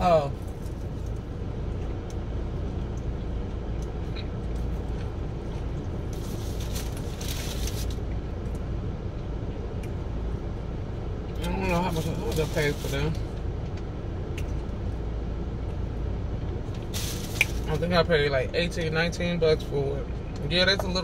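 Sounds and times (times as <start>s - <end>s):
parked car engine rumble: 0.0s - 21.0s
rustling hiss: 16.8s - 17.7s.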